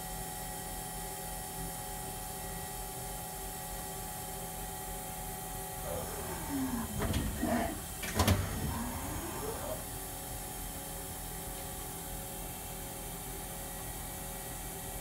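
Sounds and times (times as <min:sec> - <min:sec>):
machine hum and hiss: 0:00.0 - 0:15.0
axis drives whining: 0:05.8 - 0:10.0.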